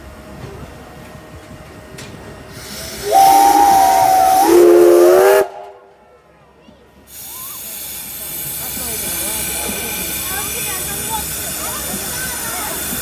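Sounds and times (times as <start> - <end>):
hiss of steam: 2.5 - 5.7, 7.0 - 13.0
steam locomotive whistle: 2.9 - 5.9.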